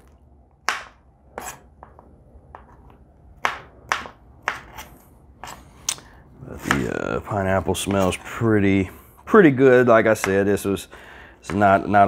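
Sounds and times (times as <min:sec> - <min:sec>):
knife chopping on a board: 0:00.6 - 0:02.7, 0:03.4 - 0:04.9, 0:11.4 - 0:12.0.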